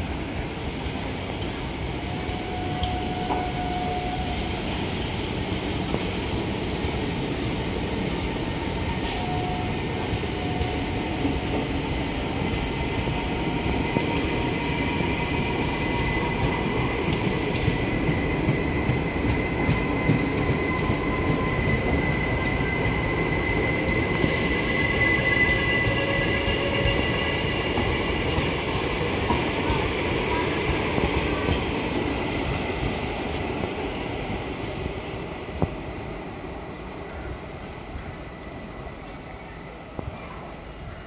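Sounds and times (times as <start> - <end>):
train wheels rumbling on rail: 0.0 - 41.0
high wheel squeal: 18.6 - 27.9.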